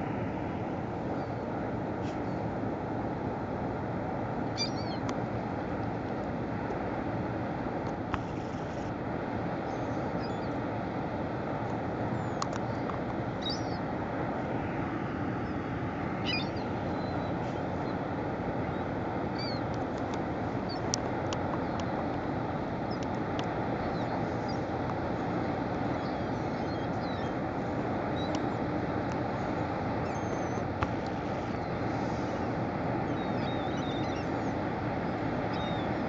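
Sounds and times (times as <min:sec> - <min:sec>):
bird chirps: 0:04.6 - 0:05.0, 0:13.4 - 0:13.8.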